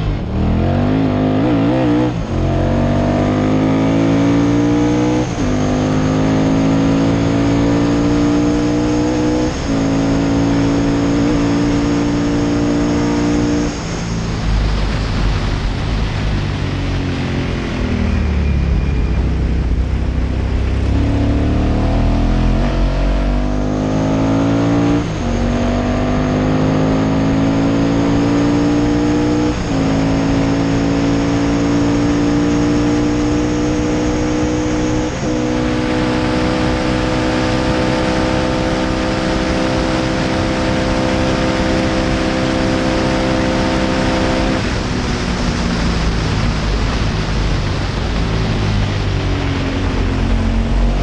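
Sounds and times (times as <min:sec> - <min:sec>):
racing engine accelerating: 0:00.0 - 0:51.0
wind rushing past microphone: 0:09.2 - 0:51.0.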